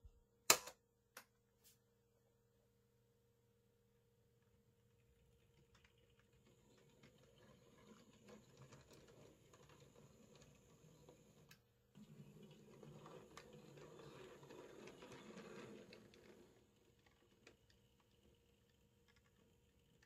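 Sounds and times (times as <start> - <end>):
model locomotive whirring: 6.2 - 20.0.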